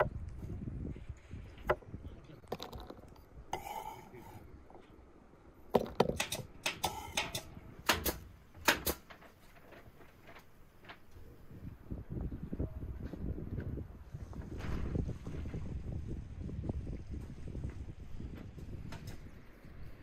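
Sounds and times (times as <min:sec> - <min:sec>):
knife scraping into wooden bowl: 0:03.6 - 0:04.4.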